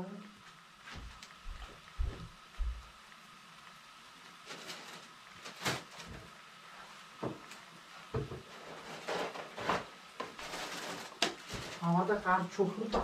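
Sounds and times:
faint steady hiss: 0:00.0 - 0:13.0
household knocks and clatter: 0:08.1 - 0:11.8.

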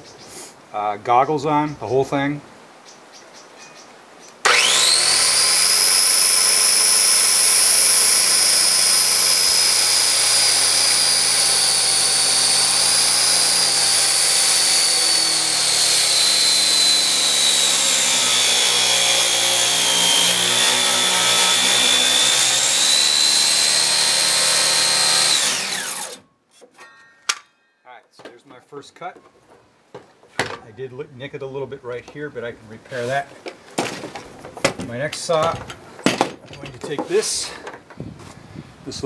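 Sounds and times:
circular saw cutting wood: 0:04.4 - 0:26.2.

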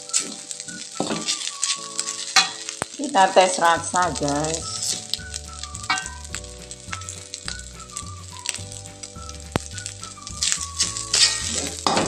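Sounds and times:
metal spatula scraping a pan: 0:00.0 - 0:02.9, 0:05.9 - 0:06.4, 0:10.2 - 0:12.0
background music: 0:00.0 - 0:12.0
rice sizzling in a wok: 0:00.0 - 0:12.0.

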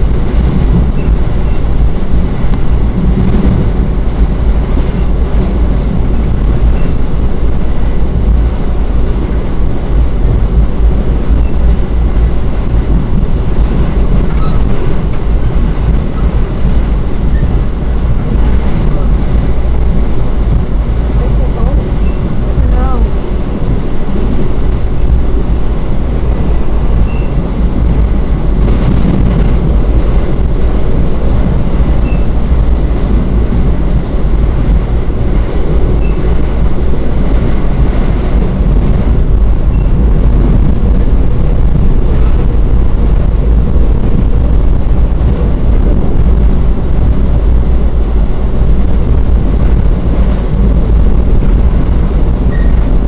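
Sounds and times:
train running rumble: 0:00.0 - 0:53.0.

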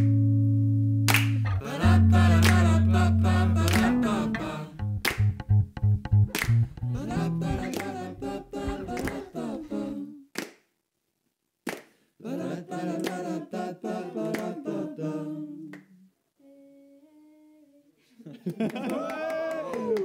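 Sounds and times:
person humming and singing: 0:01.6 - 0:04.8, 0:06.8 - 0:10.3, 0:12.4 - 0:18.0.

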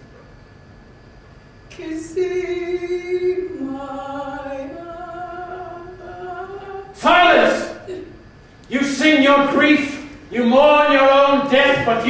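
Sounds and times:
person singing long notes: 0:01.7 - 0:07.0.

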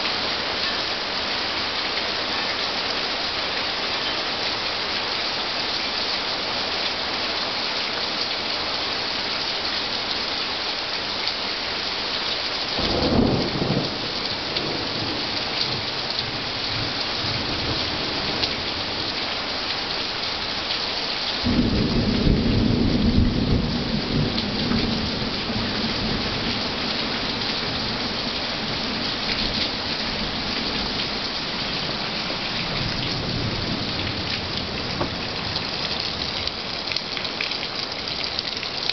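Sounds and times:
heavy rain: 0:00.0 - 0:38.9
thunder rumbling: 0:12.8 - 0:15.5.

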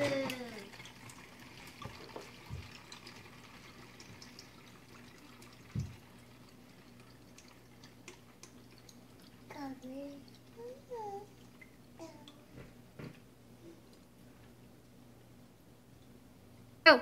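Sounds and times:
water dripping and trickling: 0:00.0 - 0:12.6
faint steady hum: 0:00.0 - 0:17.0.

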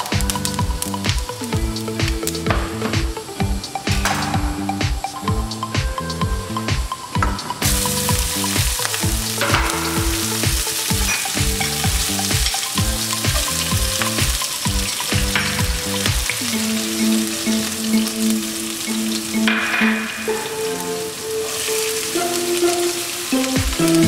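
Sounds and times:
background music with beat and bass: 0:00.0 - 0:24.0
seeds sizzling in hot oil: 0:07.6 - 0:19.4, 0:20.0 - 0:24.0.

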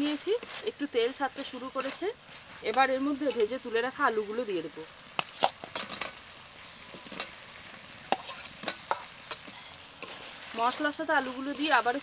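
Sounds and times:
frying hiss: 0:00.0 - 0:12.0.

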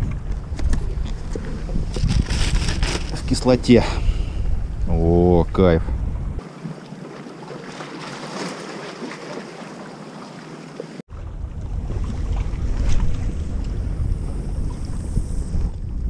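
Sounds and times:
wind buffeting microphone: 0:00.0 - 0:06.4, 0:11.1 - 0:16.0
small waves splashing on rocks: 0:06.4 - 0:11.0.

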